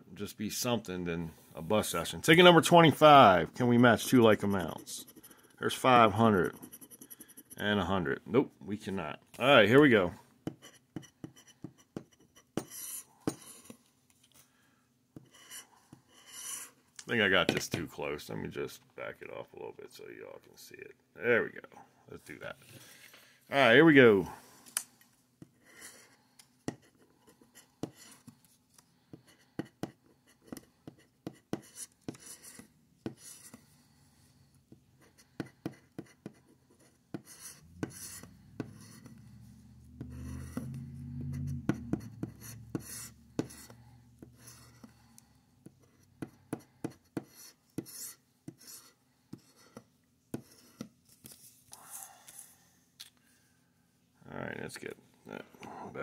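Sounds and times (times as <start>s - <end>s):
scraping a scratch-off ticket: 2.3s - 8.0s, 35.0s - 46.3s
low hum: 37.7s - 43.4s.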